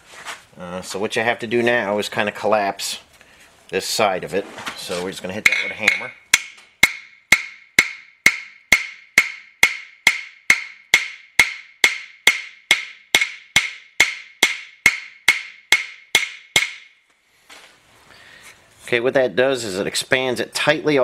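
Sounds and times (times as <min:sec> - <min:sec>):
hammer tapping on metal: 0:05.4 - 0:16.9.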